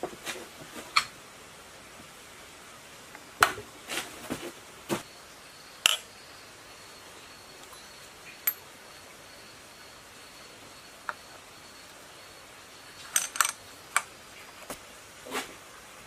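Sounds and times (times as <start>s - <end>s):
metal parts clinking: 13.1s - 13.6s.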